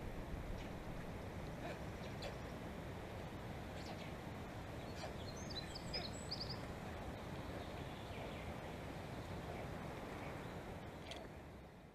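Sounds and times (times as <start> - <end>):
forest background noise: 0.0 - 11.9
songbird chirping: 3.8 - 11.3.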